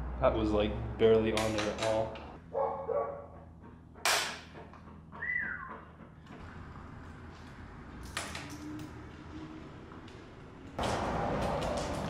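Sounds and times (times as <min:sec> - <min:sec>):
falling whistle-like tone: 0:05.2 - 0:05.8.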